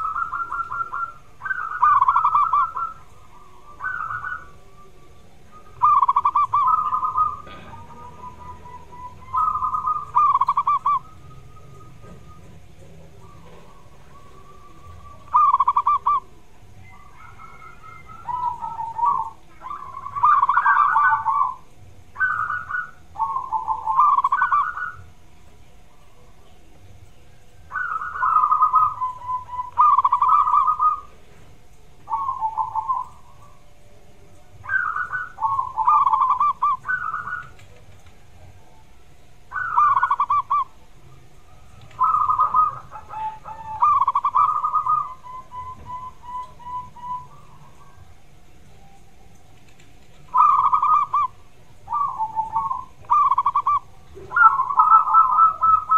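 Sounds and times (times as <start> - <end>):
dove cooing: 0.0 - 26.8, 27.4 - 55.9.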